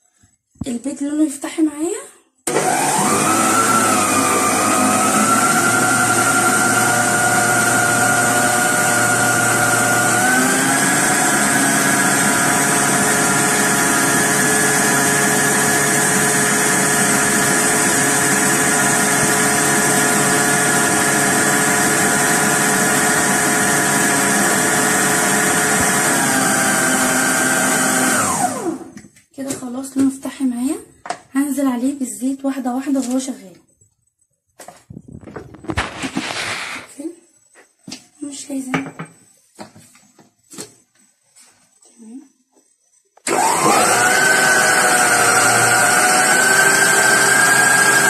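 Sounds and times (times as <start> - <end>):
blender motor whine: 2.5 - 29.0, 43.2 - 48.0.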